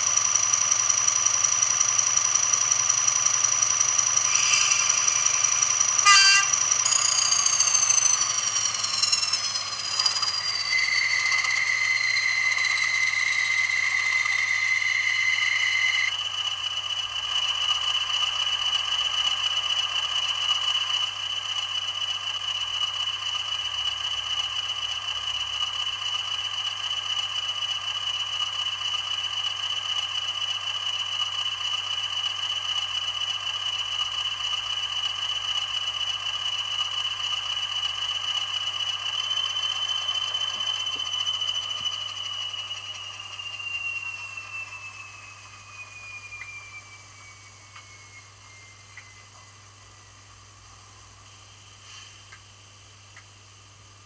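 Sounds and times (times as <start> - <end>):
diesel engine through small speaker: 0.0 - 51.6
high whine: 2.1 - 16.2, 36.7 - 50.7.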